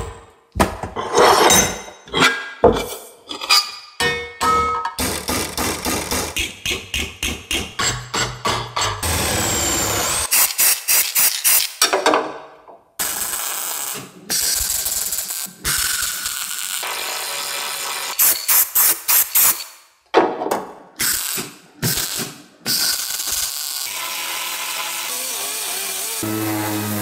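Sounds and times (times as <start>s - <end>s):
welder crackling on sheet metal: 13.0s - 19.6s, 21.1s - 24.0s.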